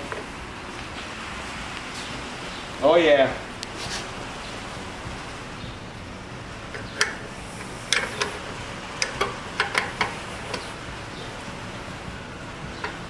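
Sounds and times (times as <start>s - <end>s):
wrench clicking on metal nut: 6.7s - 10.7s.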